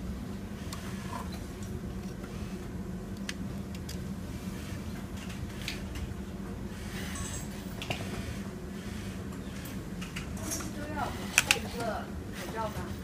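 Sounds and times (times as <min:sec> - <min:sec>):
industrial sewing machines humming: 0:05.5 - 0:13.0.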